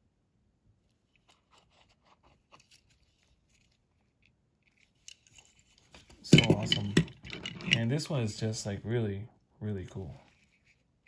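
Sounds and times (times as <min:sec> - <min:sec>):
toy trucks clicking and rustling: 0:01.1 - 0:08.1.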